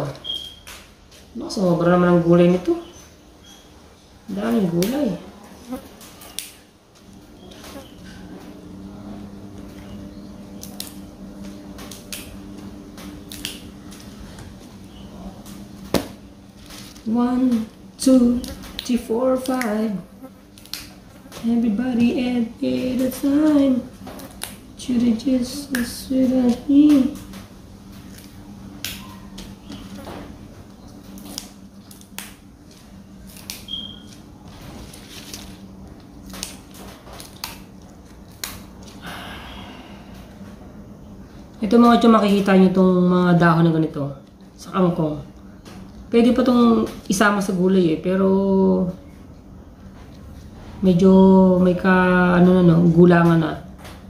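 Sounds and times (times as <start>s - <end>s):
steady low hum: 0.0s - 54.0s
plant stems snapping: 11.8s - 12.4s, 13.2s - 14.2s, 18.4s - 19.8s, 20.5s - 21.0s, 25.6s - 27.3s, 31.2s - 34.2s, 36.1s - 39.0s.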